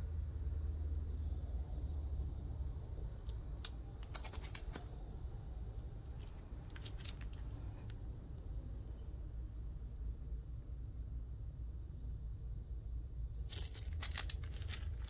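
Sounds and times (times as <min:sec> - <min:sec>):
low steady hum: 0:00.0 - 0:15.0
plastic sleeves crinkling: 0:06.2 - 0:08.0, 0:13.4 - 0:15.0.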